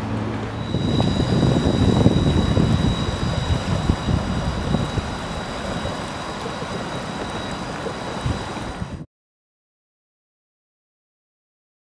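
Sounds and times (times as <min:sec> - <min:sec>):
faint high whine: 0:00.3 - 0:09.1
wind buffeting microphone: 0:00.5 - 0:09.0.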